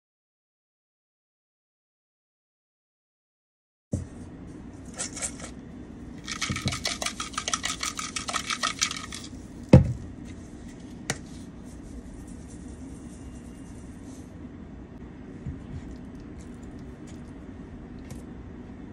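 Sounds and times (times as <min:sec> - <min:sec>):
seasoning container shaking: 0:06.2 - 0:09.5
seasoning sprinkling: 0:06.2 - 0:09.7, 0:11.2 - 0:14.3
container set down thump: 0:09.7 - 0:10.0.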